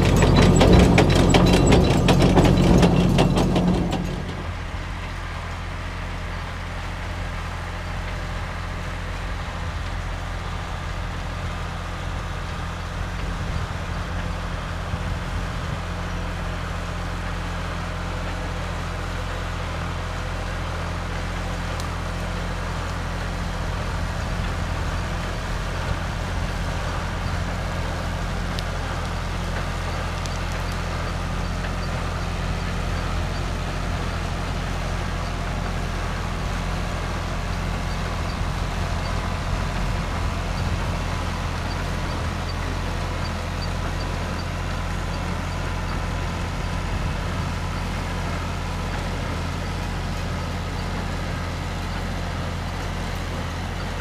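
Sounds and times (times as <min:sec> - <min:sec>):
loud mechanical clatter: 0:00.0 - 0:05.2
diesel tractor humming: 0:00.0 - 0:54.0.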